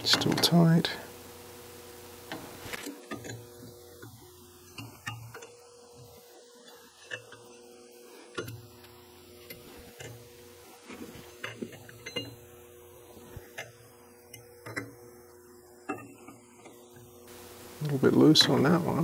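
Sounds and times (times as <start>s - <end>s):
faint steady hum: 0.0s - 19.0s
small metallic clicks and taps: 13.5s - 15.0s.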